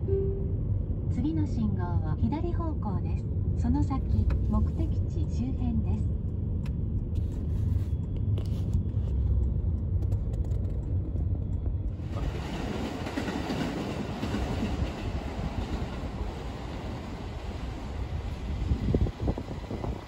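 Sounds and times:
road rumble inside car: 0.0 - 12.2
city street noise: 2.7 - 20.0.

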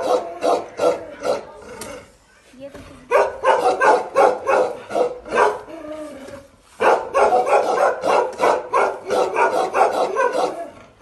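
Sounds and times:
dog barking aggressively: 0.0 - 1.5, 3.1 - 5.7, 6.8 - 10.8.

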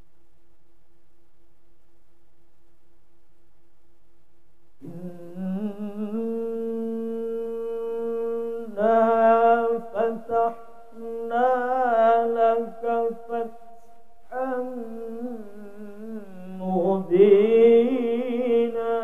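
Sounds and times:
man chanting melodically: 4.8 - 19.0.

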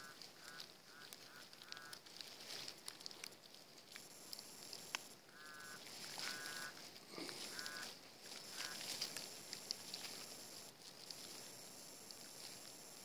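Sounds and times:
pinpointer buzzing in short pulses: 3.9 - 13.0
probe scraping in dirt: 3.9 - 13.0.

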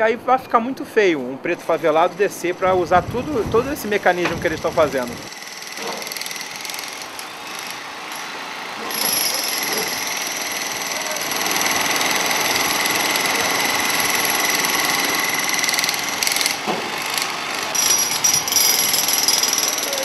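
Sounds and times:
jackhammer breaking pavement: 4.2 - 20.0.

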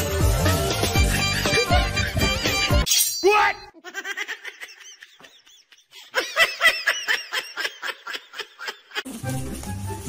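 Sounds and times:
high-pitched giggling: 3.6 - 9.0.

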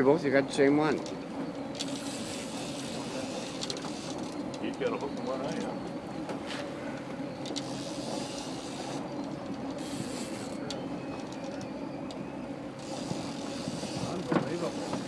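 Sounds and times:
boat engine droning: 0.0 - 15.0
faint clicks: 7.0 - 8.1.

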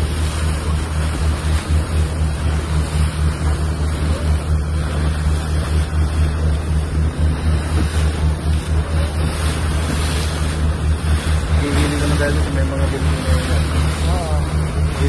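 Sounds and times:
boat engine droning: 0.0 - 15.0
water washing along hull: 0.0 - 15.0
wind buffeting microphone: 0.0 - 15.0.

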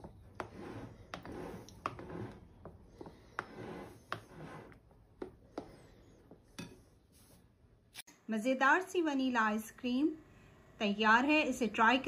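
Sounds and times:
spatula swishing through cream: 0.0 - 7.6.

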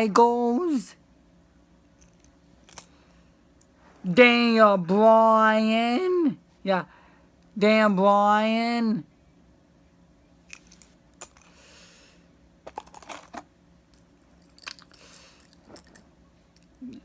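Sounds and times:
soft rustle: 3.7 - 4.3
metal dog tags clinking: 13.9 - 16.8.

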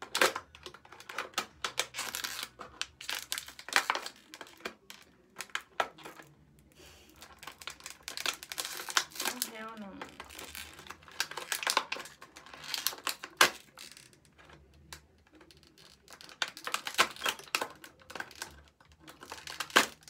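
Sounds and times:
plastic bottle crinkling: 0.0 - 20.0.

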